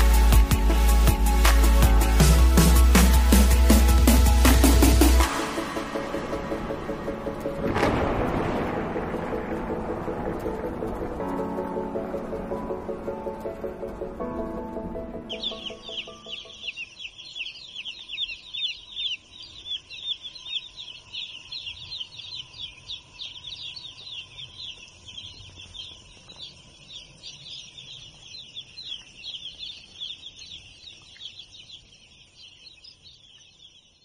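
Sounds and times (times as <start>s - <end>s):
chicks peeping: 9.5s - 34.0s.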